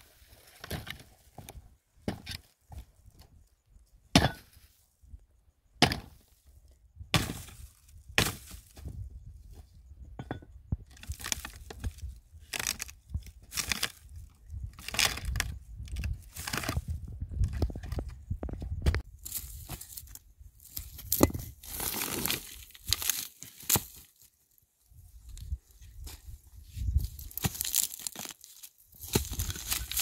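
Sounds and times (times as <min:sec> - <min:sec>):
dry wood cracking: 0:10.9 - 0:16.8, 0:20.8 - 0:24.1, 0:27.2 - 0:30.0.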